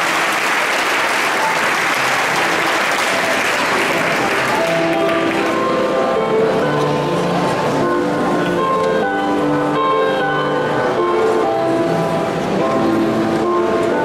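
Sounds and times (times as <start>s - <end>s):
audience applauding: 0.0s - 5.8s
music with held notes: 0.0s - 14.0s.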